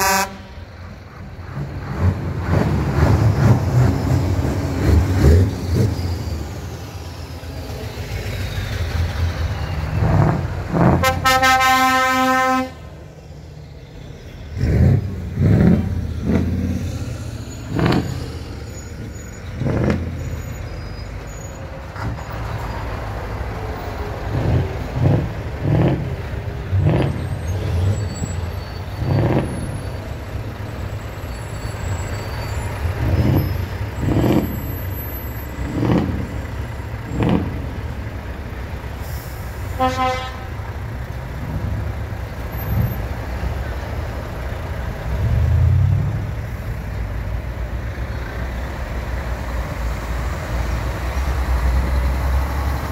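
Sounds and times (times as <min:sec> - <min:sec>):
truck air horn: 0:00.0 - 0:00.7, 0:10.8 - 0:12.9, 0:39.0 - 0:40.8
short sharp noises from trucks: 0:00.0 - 0:06.7, 0:08.6 - 0:13.4, 0:24.2 - 0:43.6
truck diesel engines running: 0:00.0 - 0:52.9.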